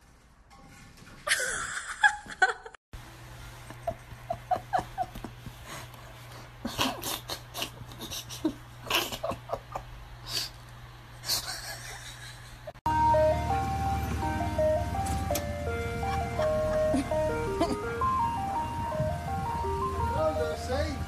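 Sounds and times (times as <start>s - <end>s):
human laughter: 3.8s - 5.4s, 6.6s - 10.0s, 11.2s - 12.8s, 16.0s - 17.9s.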